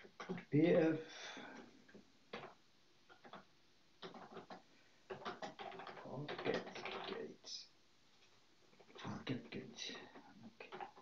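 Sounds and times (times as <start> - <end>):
typing on computer keyboard: 3.1 - 7.3, 10.0 - 11.0.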